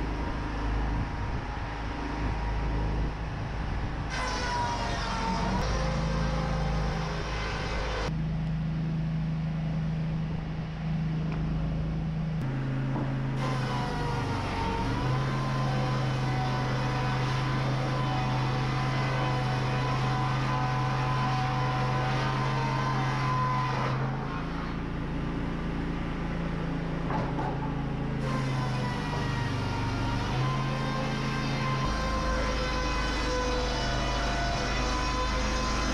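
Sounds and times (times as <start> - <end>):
sawmill machinery droning: 0.0 - 35.9.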